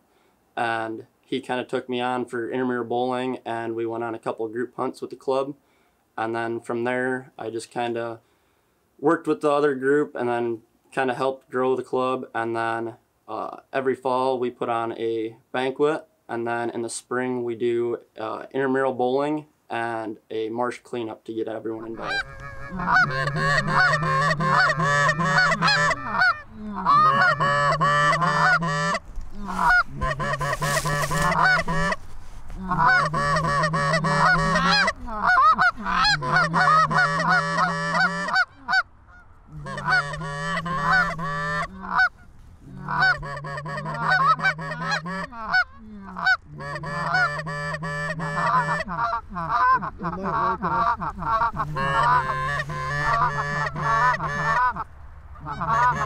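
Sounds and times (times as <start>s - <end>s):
geese honking: 21.8s - 32.0s, 32.6s - 56.0s.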